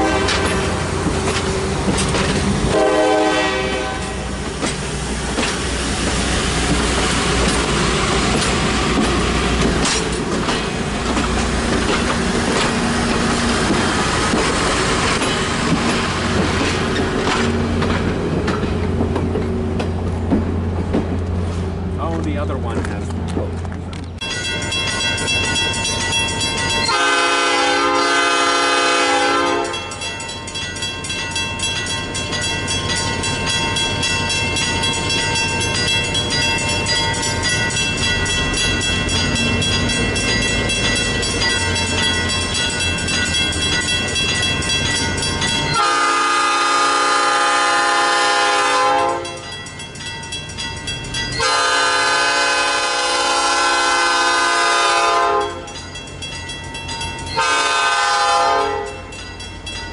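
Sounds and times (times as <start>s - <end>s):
locomotive air horn blasts: 0.0s - 0.9s, 2.7s - 4.3s, 26.9s - 29.9s, 45.8s - 49.4s, 51.4s - 55.7s, 57.4s - 59.0s
train engine rumble: 0.0s - 59.9s.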